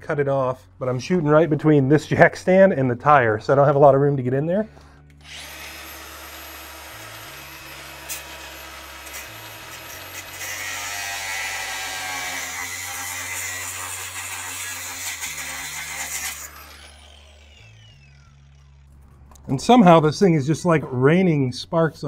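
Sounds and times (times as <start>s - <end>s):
cutoff wheel whining: 16.3s - 19.4s.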